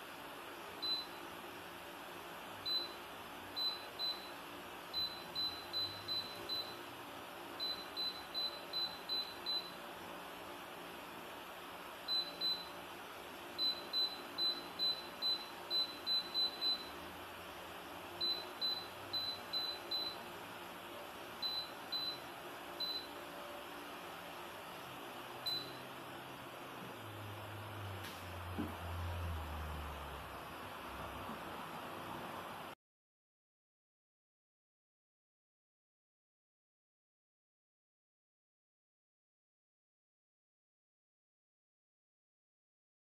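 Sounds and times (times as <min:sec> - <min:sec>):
steady hum: 0:00.0 - 0:32.8.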